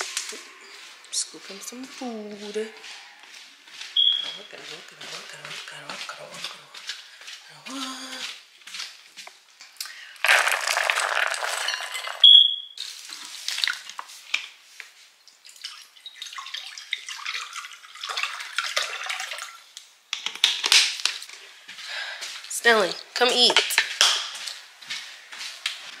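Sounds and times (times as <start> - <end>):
smoke detector chirp: 4.0 - 4.5, 12.2 - 12.8
kibble rattling into plastic bowl: 10.2 - 12.3
water pouring into bowl: 10.2 - 12.3, 15.5 - 19.6.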